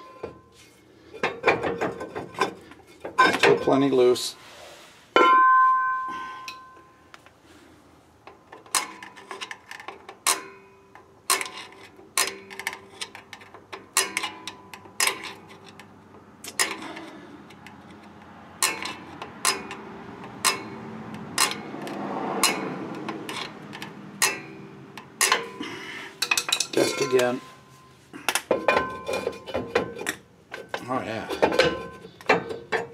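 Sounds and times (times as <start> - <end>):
metal scraping: 8.6 - 32.9.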